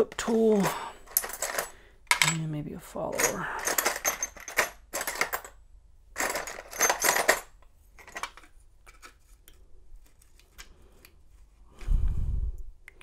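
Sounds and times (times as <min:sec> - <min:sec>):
metal lock parts clinking: 0:00.0 - 0:05.6, 0:06.2 - 0:09.2.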